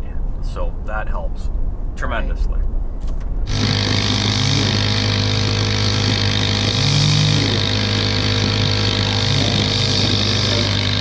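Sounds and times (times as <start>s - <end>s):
string trimmer engine running: 3.5s - 11.0s.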